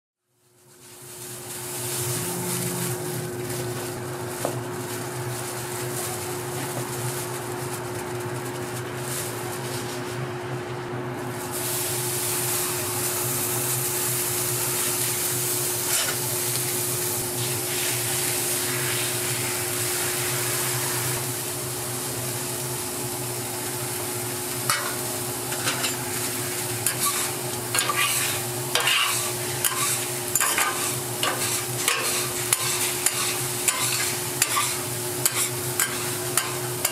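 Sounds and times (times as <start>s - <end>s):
food sizzling on a griddle: 0.4s - 10.0s, 11.3s - 36.9s
metal spatula scraping griddle: 24.7s - 36.9s.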